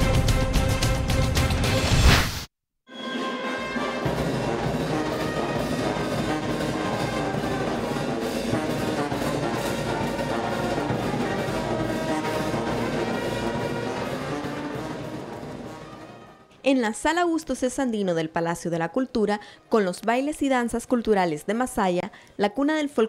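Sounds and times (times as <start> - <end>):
brass music with drums: 0.0 - 2.3, 2.9 - 16.6.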